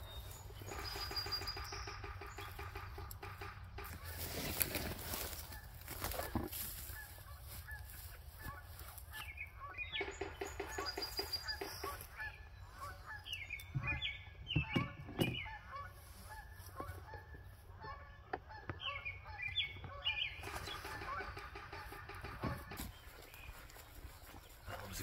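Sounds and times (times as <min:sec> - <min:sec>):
birds calling: 0:00.0 - 0:25.0
rustling: 0:03.9 - 0:09.1.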